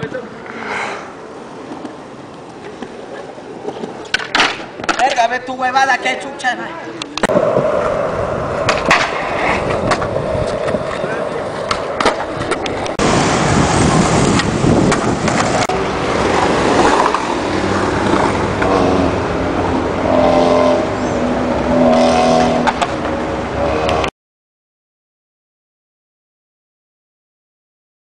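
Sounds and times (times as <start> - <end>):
skateboard wheels rolling on concrete: 0.0 - 24.1
skateboard clacks: 1.6 - 5.4, 8.6 - 13.1, 14.0 - 18.8, 22.6 - 23.2.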